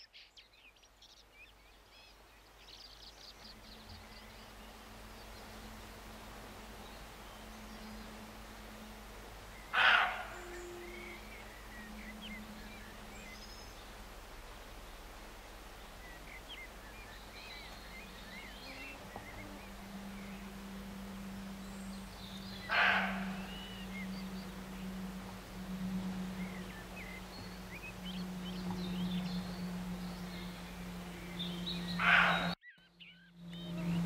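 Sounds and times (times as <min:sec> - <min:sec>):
small birds chirping: 0:00.0 - 0:34.0
steady low hum: 0:00.5 - 0:34.0
deer barking: 0:09.7 - 0:11.2, 0:22.6 - 0:23.8, 0:32.0 - 0:32.6.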